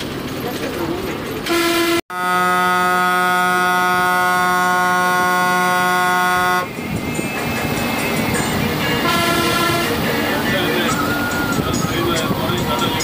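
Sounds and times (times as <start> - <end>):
bus engine: 0.0 - 13.0
road noise: 0.0 - 13.0
bus horn blast: 1.5 - 6.7, 9.0 - 10.1.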